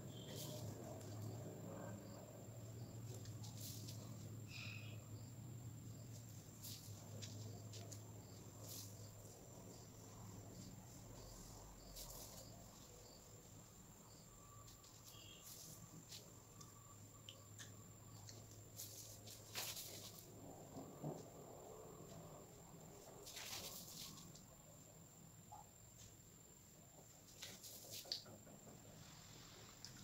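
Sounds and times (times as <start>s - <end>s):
powder rustling on tiles: 18.7s - 20.3s, 23.1s - 24.4s.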